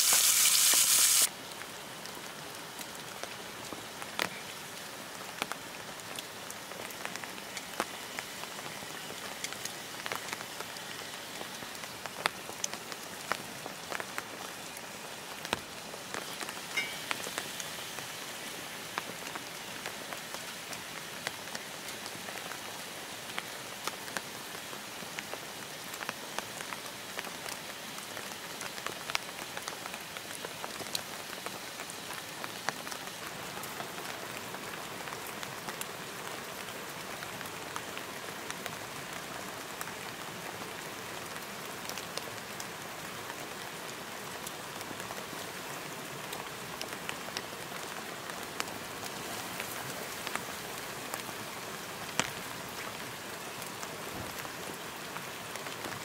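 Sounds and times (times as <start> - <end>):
meat sizzling in a skillet: 0.0 - 1.3
steady rain falling: 0.0 - 56.0.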